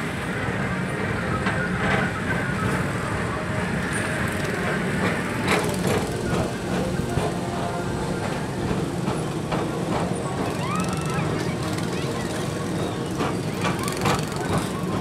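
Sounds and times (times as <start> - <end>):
ride car rumbling on track: 0.0 - 15.0.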